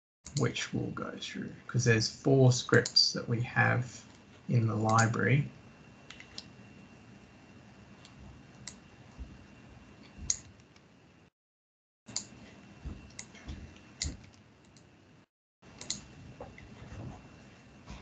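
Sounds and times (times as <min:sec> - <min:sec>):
computer mouse clicks: 0:06.1 - 0:06.5, 0:08.0 - 0:08.8, 0:10.0 - 0:10.9, 0:14.0 - 0:14.9, 0:15.8 - 0:16.0.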